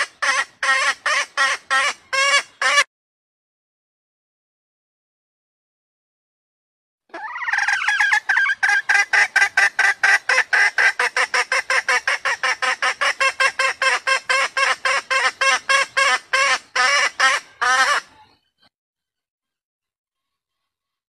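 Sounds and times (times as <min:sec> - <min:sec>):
hen cackling: 0:00.0 - 0:02.9, 0:07.1 - 0:18.4.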